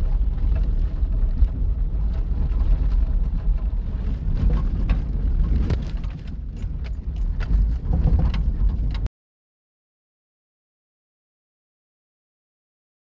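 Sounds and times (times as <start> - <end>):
engine and tyre rumble in cab: 0.0 - 9.1
knocks and rattles: 0.0 - 9.1.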